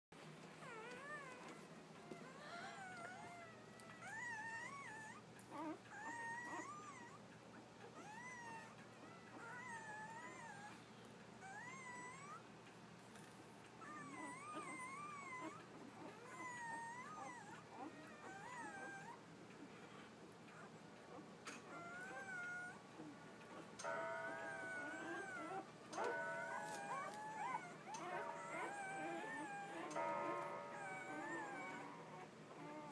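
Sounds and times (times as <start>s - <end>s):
puppies crying: 0.6s - 7.2s, 7.8s - 10.8s, 11.4s - 12.4s, 13.8s - 19.9s, 20.6s - 32.9s.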